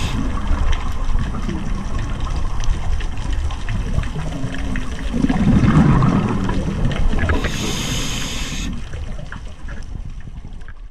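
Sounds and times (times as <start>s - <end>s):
regulator inhalation hiss: 0.0s - 0.2s, 7.3s - 8.8s
exhaled bubbles underwater: 0.0s - 10.9s.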